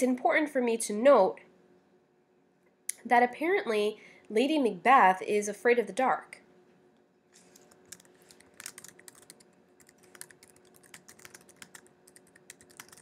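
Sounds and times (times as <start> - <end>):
keyboard typing: 7.6 - 13.0.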